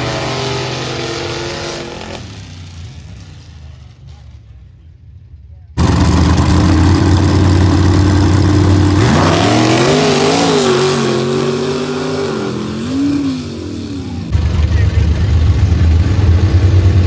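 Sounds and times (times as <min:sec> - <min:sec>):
truck engines revving: 0:00.0 - 0:17.0.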